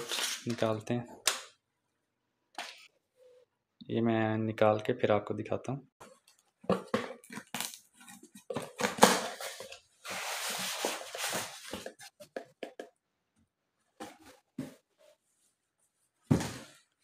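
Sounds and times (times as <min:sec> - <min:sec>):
cardboard and styrofoam scraping: 0:08.2 - 0:12.1.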